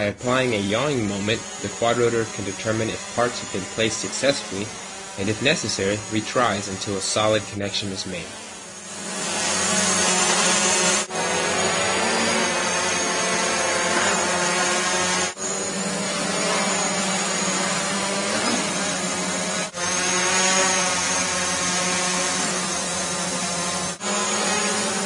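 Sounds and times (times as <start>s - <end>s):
quadcopter propellers buzzing: 0.0s - 25.0s.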